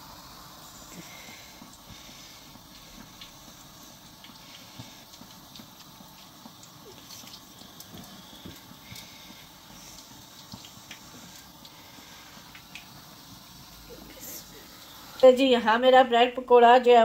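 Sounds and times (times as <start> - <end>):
hot oil sizzling and popping: 0.0 - 17.0
wet squishing of battered bread: 0.9 - 14.0.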